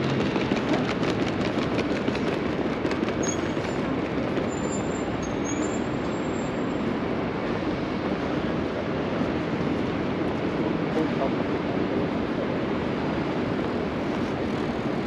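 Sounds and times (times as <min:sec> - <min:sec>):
train wheels clicking over rail joints: 0:00.0 - 0:05.6
train wheels squealing: 0:03.1 - 0:06.8.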